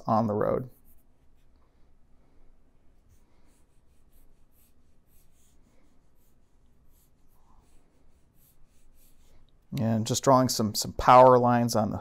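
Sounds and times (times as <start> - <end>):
faint scratchy pen strokes: 0.4 - 9.7.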